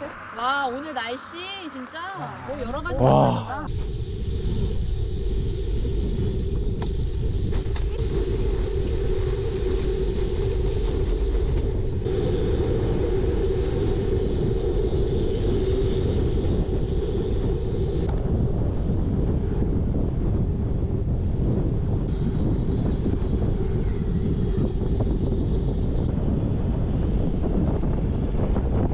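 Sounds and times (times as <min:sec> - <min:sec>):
wind rumble on microphone: 0:02.5 - 0:28.9
bike tyres on asphalt: 0:03.8 - 0:28.9.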